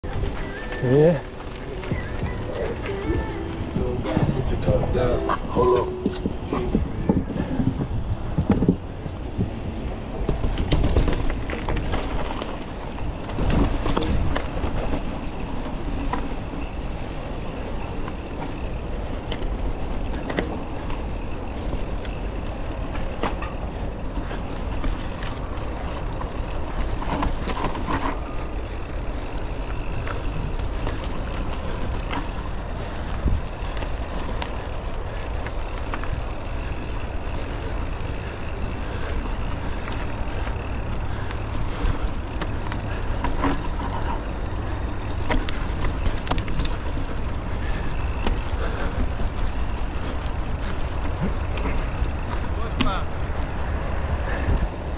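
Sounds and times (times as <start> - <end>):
wind on microphone: 0.0 - 16.0
bike knocking and rattling: 0.0 - 54.9
bike tyres rumbling on rocks: 0.0 - 54.9.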